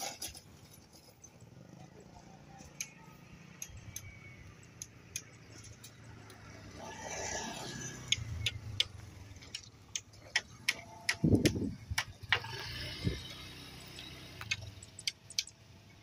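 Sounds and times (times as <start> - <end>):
motorbike passing: 1.2 - 16.0
sharp clicks: 2.6 - 6.4, 8.1 - 12.5, 13.9 - 15.6.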